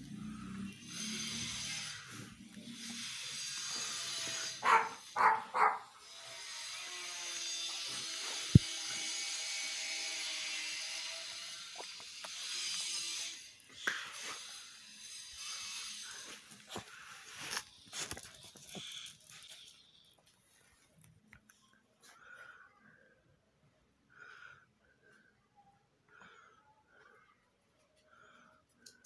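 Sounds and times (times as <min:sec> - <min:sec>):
dog barking: 0:04.6 - 0:06.0.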